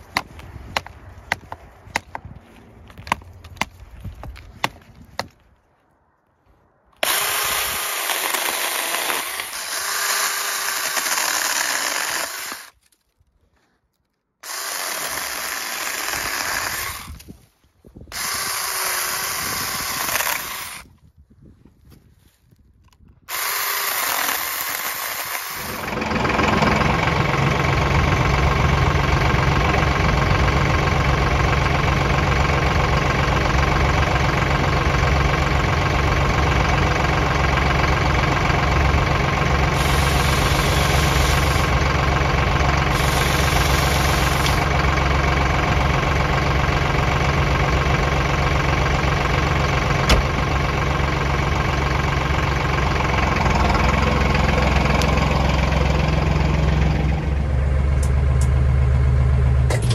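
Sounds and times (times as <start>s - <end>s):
hatchet chopping a branch: 0.0s - 2.3s
battery chainsaw cutting branches: 7.0s - 13.0s, 14.4s - 17.3s, 18.1s - 20.9s, 23.3s - 26.1s, 39.7s - 41.8s, 42.8s - 44.7s
tractor engine idling: 23.3s - 59.9s.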